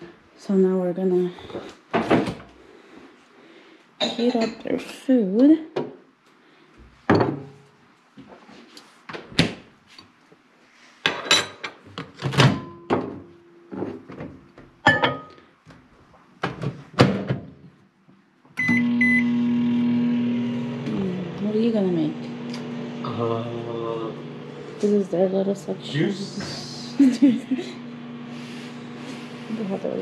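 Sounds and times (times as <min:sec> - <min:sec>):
bowl knocking and clattering: 0:07.1 - 0:07.6, 0:14.8 - 0:15.4
short beeps: 0:18.6 - 0:19.3
microwave humming: 0:18.6 - 0:30.0.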